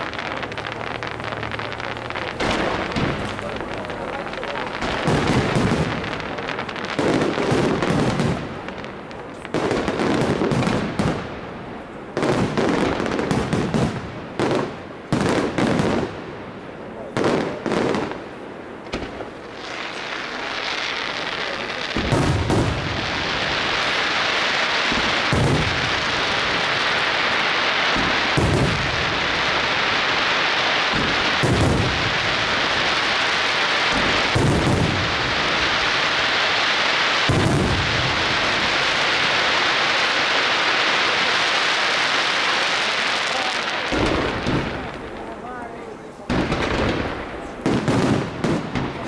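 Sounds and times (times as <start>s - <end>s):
firework shell booms: 0.0s - 8.7s, 18.8s - 41.2s, 43.2s - 45.4s
firework crackling hiss: 0.0s - 49.0s.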